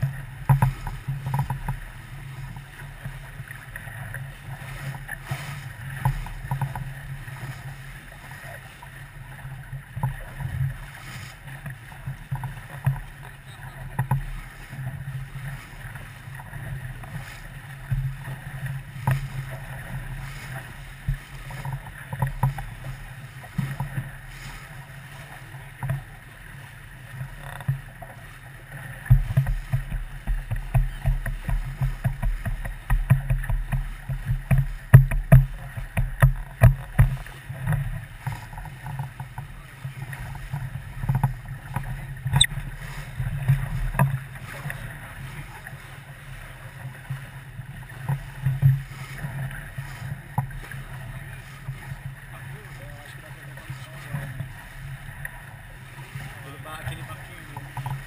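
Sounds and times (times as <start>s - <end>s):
water against boat hull: 0.0s - 58.0s
hull knocks and surges: 11.4s - 24.3s, 29.0s - 45.8s.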